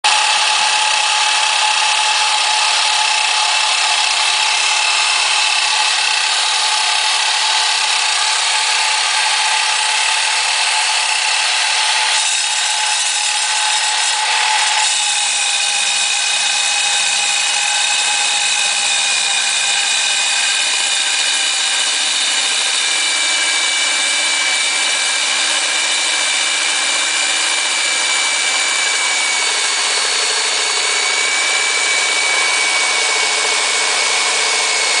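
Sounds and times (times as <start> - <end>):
drill bit cutting wet concrete: 0.0 - 35.0
electric core drill whining: 0.0 - 35.0.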